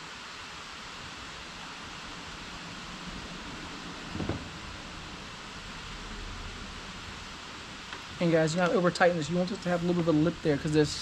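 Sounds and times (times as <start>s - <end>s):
background hiss: 0.0s - 11.0s
soft bump on plastic hull: 4.1s - 4.6s.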